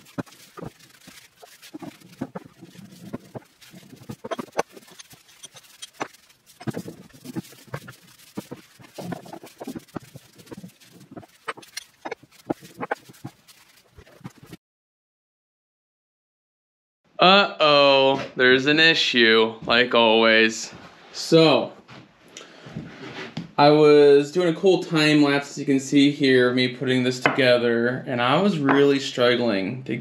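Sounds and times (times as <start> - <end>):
rag rubbing metal: 0.0 - 14.6.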